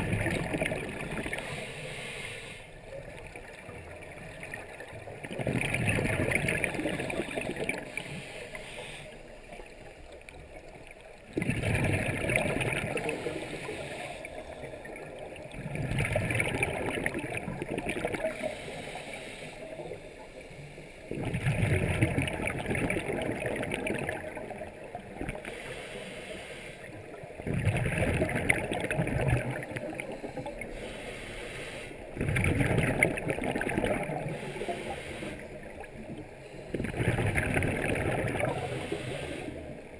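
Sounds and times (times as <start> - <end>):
diver inhaling: 1.2 - 2.8, 7.8 - 9.3, 13.0 - 14.9, 18.2 - 21.1, 25.4 - 27.1, 30.0 - 32.2, 34.1 - 37.2, 38.4 - 39.9
regulator exhalation bubbling: 36.6 - 39.6.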